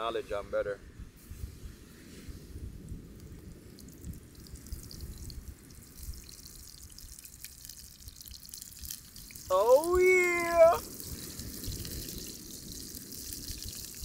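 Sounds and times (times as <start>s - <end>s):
light crackling: 1.2s - 14.0s
batter squelching and dripping: 2.8s - 14.0s.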